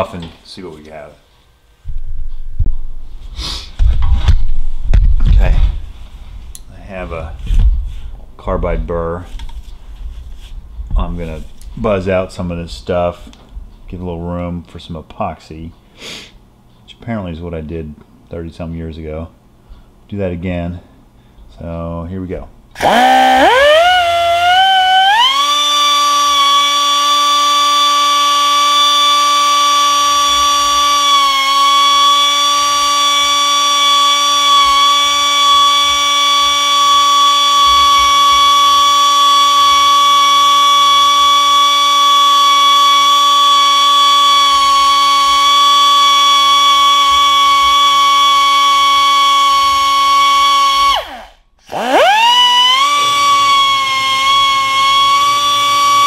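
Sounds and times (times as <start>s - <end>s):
air die grinder whining: 22.8s - 56.0s.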